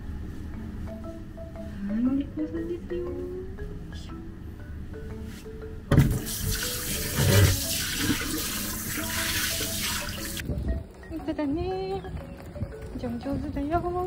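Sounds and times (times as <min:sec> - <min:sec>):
tap water running into sink: 0:06.0 - 0:10.4.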